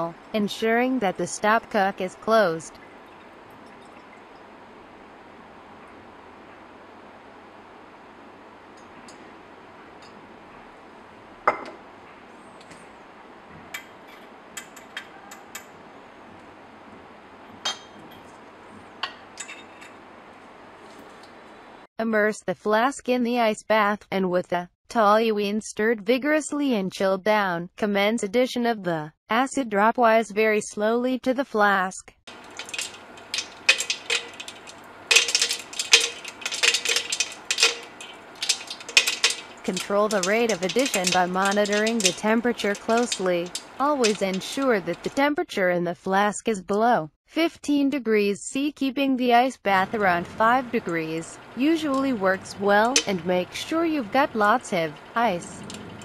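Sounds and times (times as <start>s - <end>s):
glassware clinking: 11.5s - 11.8s, 17.6s - 18.2s, 32.4s - 39.7s.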